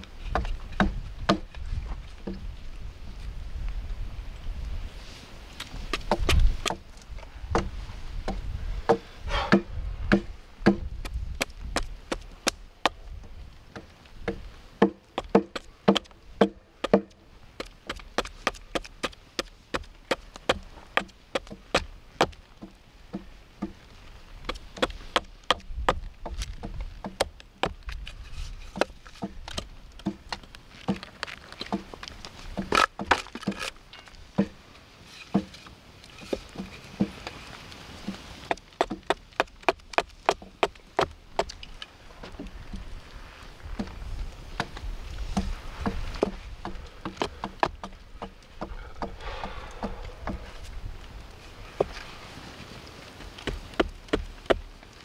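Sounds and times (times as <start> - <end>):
hatchet chopping wood: 0.3 - 1.6, 5.9 - 6.9, 7.5 - 13.0, 13.7 - 23.8, 24.4 - 28.1, 28.7 - 33.7, 34.4 - 34.6, 35.3 - 35.6, 38.5 - 42.6, 44.5 - 50.4, 53.4 - 54.7.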